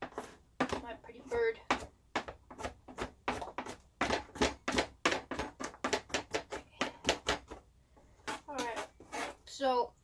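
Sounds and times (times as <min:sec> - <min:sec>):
knife chopping on plastic board: 0:00.0 - 0:07.6.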